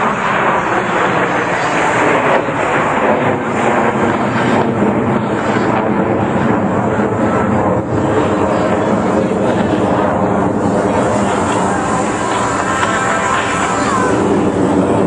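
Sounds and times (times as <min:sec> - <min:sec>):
jet aircraft flying past: 0:00.0 - 0:15.0.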